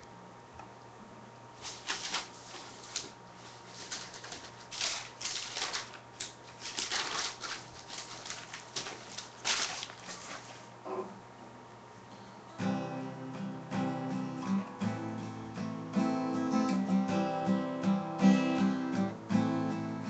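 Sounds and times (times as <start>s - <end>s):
faint steady hum: 0.0s - 20.0s
rustling and scuffing on microphone: 1.6s - 4.7s.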